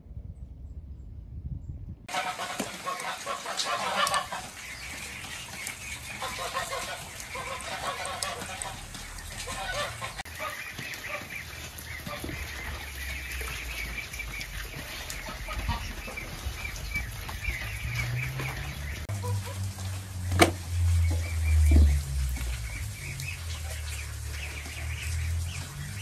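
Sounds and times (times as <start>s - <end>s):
low rumble: 0.0s - 2.1s, 12.0s - 26.0s
poultry calling: 2.1s - 26.0s.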